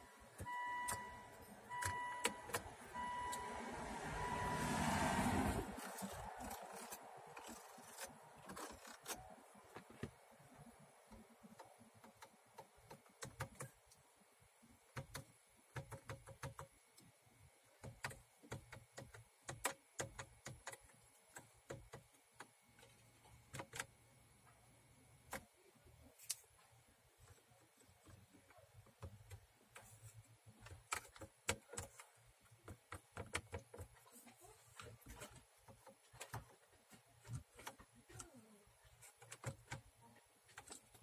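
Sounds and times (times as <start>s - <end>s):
radio buttons and knob clicking: 0.1s - 3.5s, 27.2s - 34.2s, 34.8s - 41.0s.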